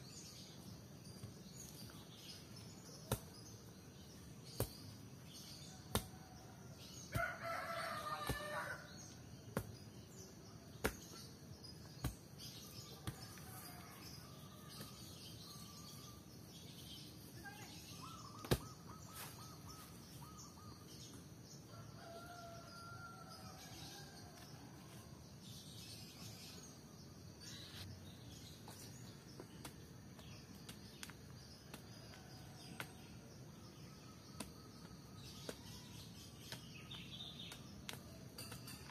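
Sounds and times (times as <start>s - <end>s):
small birds chirping: 0.0s - 38.9s
rooster crowing: 7.1s - 8.9s.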